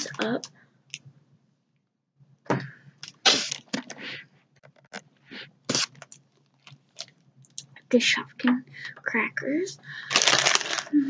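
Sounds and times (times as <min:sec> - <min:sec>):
plastic bag crinkling: 0:05.7 - 0:07.2, 0:10.1 - 0:11.0
plastic toys rattling: 0:10.1 - 0:11.0.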